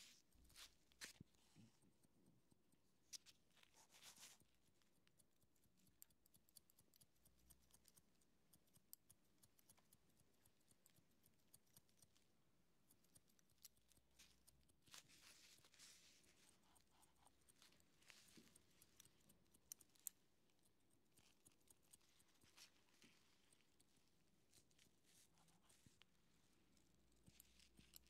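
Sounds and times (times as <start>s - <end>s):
scissors snipping hair: 5.8s - 26.1s, 26.8s - 28.0s.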